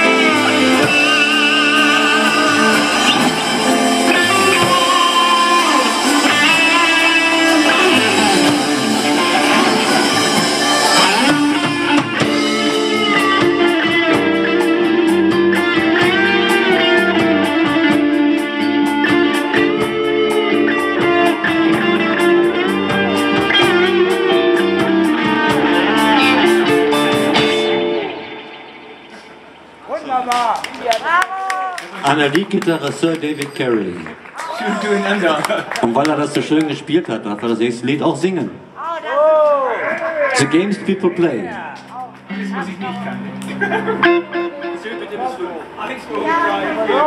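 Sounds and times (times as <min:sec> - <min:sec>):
bass guitar: 0:00.0 - 0:29.8, 0:39.8 - 0:47.0
electric guitar solo: 0:00.0 - 0:29.8, 0:39.7 - 0:47.0
drums: 0:00.0 - 0:30.9.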